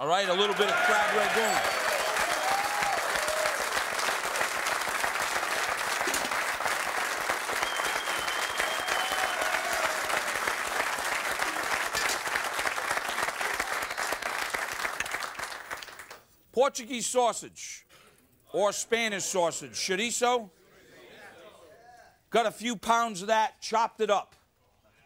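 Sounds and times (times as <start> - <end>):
audience applauding: 0.0 - 16.2.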